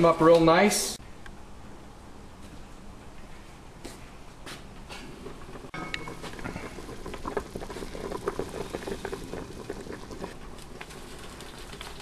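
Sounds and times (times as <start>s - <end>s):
broth bubbling in a pot: 4.8s - 12.0s.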